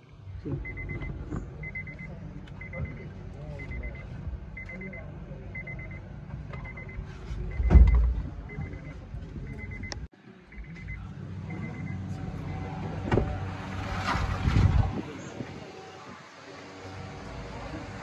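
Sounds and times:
car warning chime beeping: 0:00.5 - 0:12.7
loud thump: 0:07.6 - 0:08.3.

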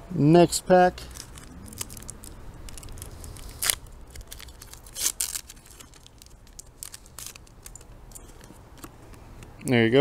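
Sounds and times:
foil wrapper crinkling: 0:01.0 - 0:08.9
foil ripping: 0:01.1 - 0:07.8.

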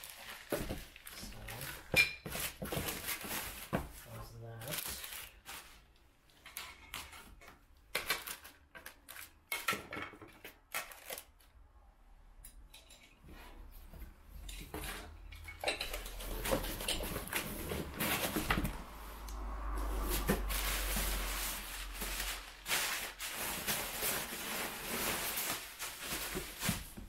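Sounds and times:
packing paper rustling: 0:00.0 - 0:05.9, 0:08.0 - 0:09.6, 0:10.4 - 0:11.5, 0:19.8 - 0:27.0
hard parts clinking and knocking: 0:14.4 - 0:18.8.

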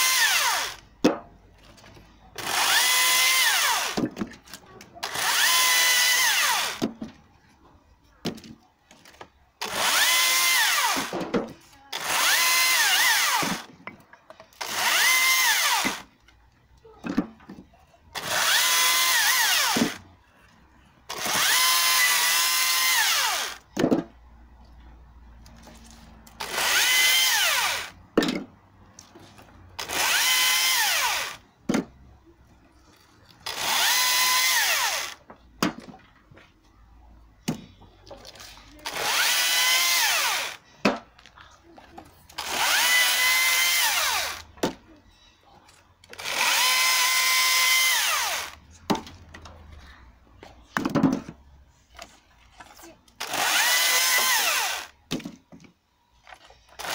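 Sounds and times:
electric chainsaw cutting wood: 0:00.0 - 0:00.8, 0:02.4 - 0:04.0, 0:05.0 - 0:06.8, 0:09.6 - 0:11.1, 0:11.9 - 0:13.7, 0:14.6 - 0:16.1, 0:18.2 - 0:20.0, 0:21.1 - 0:23.6, 0:26.3 - 0:28.0, 0:29.8 - 0:31.4, 0:33.4 - 0:35.2, 0:38.8 - 0:40.6, 0:42.4 - 0:44.5, 0:46.1 - 0:48.6, 0:53.2 - 0:55.0.

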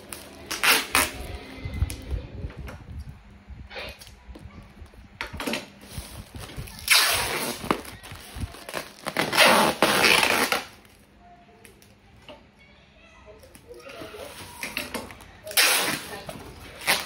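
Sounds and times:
packing material rustling: 0:05.8 - 0:11.1.

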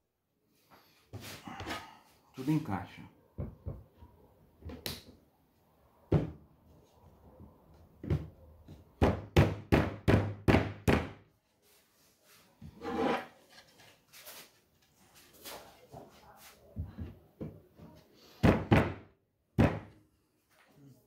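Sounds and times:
wooden panels knocked by hand: 0:08.0 - 0:11.2, 0:18.4 - 0:20.0.

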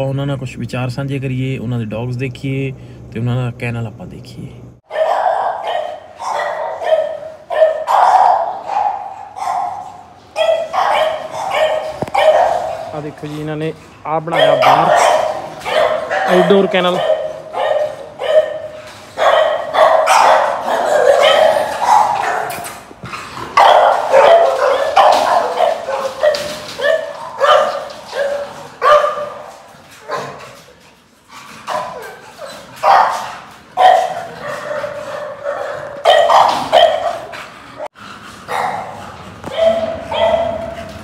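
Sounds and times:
dogs barking excitedly: 0:04.8 - 0:41.0.

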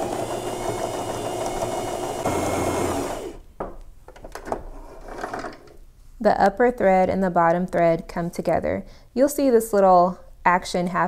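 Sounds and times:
sewing machine stitching: 0:00.0 - 0:03.4.

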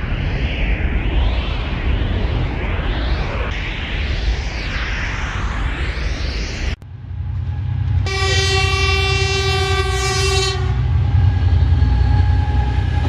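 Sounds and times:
electric train rumbling past: 0:00.0 - 0:13.0
train horn blast: 0:08.0 - 0:11.3.

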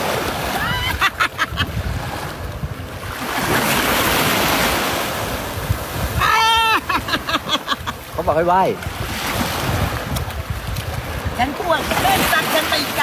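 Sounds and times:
small waves breaking on sand: 0:00.0 - 0:13.0
wind on microphone: 0:00.0 - 0:13.0.

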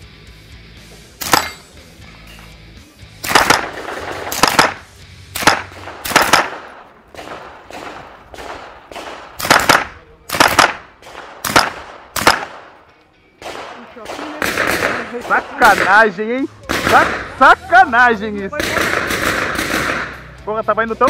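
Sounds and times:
rifle shots with echo: 0:01.2 - 0:01.8, 0:03.2 - 0:17.5, 0:18.6 - 0:20.4.

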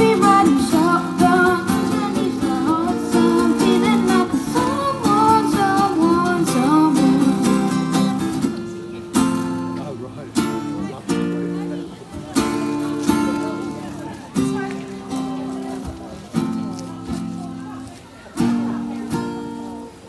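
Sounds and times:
boy singing: 0:00.0 - 0:08.4
strummed acoustic guitar: 0:00.0 - 0:20.0.

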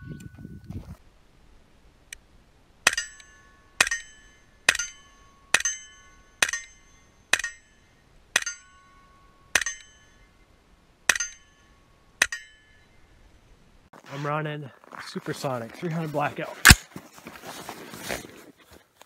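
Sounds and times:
steel target ringing: 0:02.8 - 0:10.4, 0:11.1 - 0:13.0.

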